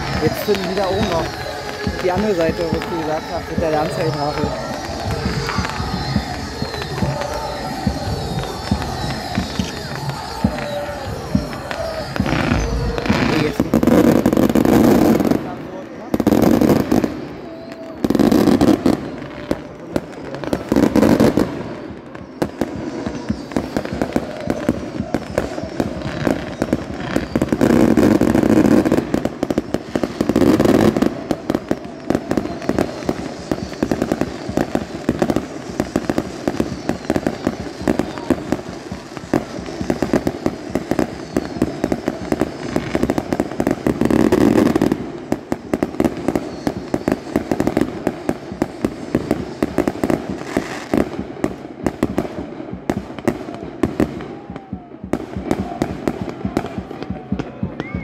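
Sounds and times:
fireworks crackling and banging: 0:00.0 - 0:58.0.

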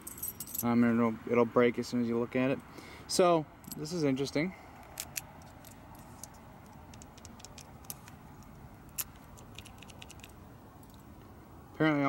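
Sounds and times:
key ring jingling: 0:00.0 - 0:00.7, 0:08.9 - 0:10.4
key clicking in lock: 0:08.9 - 0:10.4.

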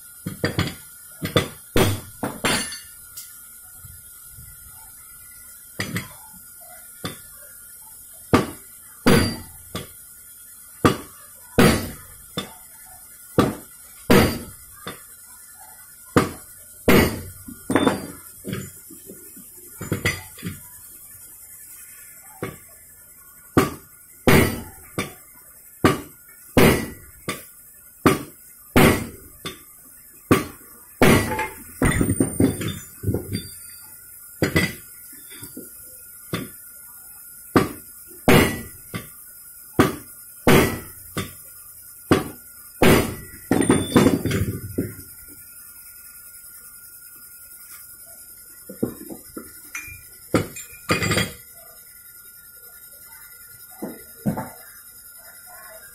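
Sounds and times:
steel tool striking metal: 0:00.3 - 0:03.3, 0:08.3 - 0:09.9, 0:10.8 - 0:12.6, 0:13.4 - 0:15.0, 0:16.2 - 0:18.7, 0:23.6 - 0:25.2, 0:25.8 - 0:27.5, 0:28.1 - 0:29.6, 0:30.3 - 0:33.8, 0:34.4 - 0:35.6, 0:36.3 - 0:36.6, 0:37.6 - 0:39.1, 0:39.8 - 0:41.4, 0:42.1 - 0:44.5.

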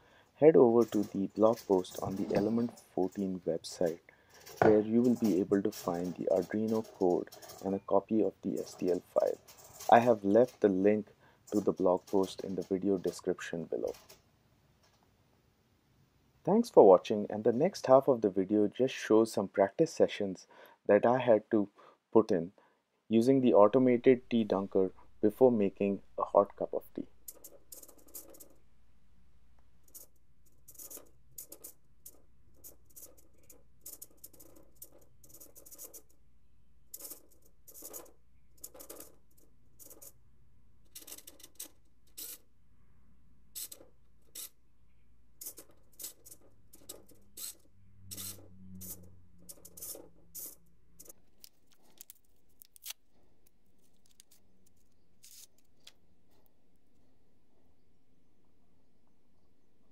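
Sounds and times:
micro servos whirring: 0:47.4 - 0:49.0
packet crinkling: 0:51.1 - 0:56.0.

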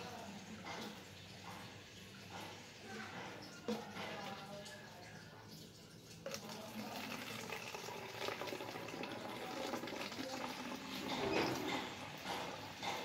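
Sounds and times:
water pouring into plastic bottle: 0:06.0 - 0:11.8.

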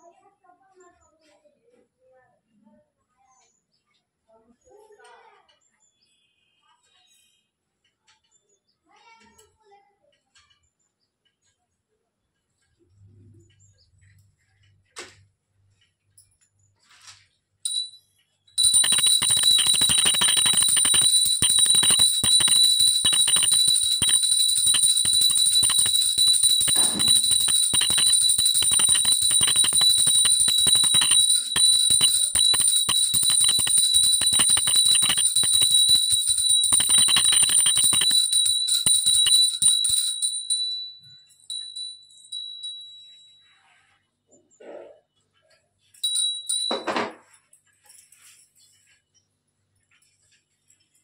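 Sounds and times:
hand bell ringing rapidly: 0:17.7 - 0:18.0, 0:18.6 - 0:43.2, 0:46.0 - 0:46.9.

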